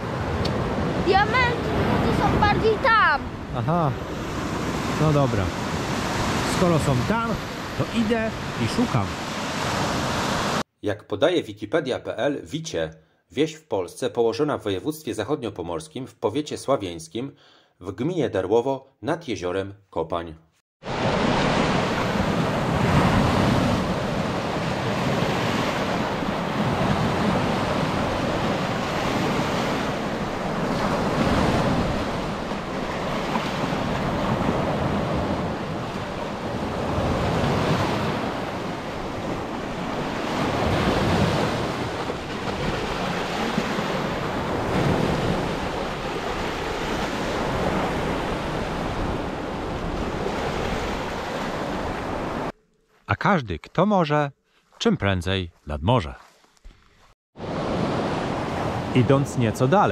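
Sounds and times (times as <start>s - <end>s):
small waves breaking on beach: 0.0s - 10.6s, 20.8s - 52.5s, 56.2s - 59.9s.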